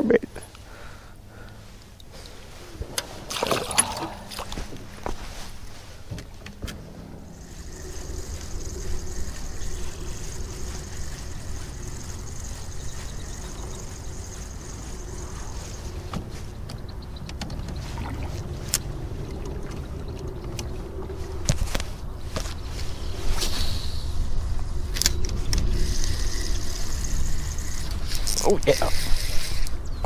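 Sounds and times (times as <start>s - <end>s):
thin high whine: 0.4s - 17.2s, 17.8s - 30.0s
boat motor running: 0.7s - 22.4s.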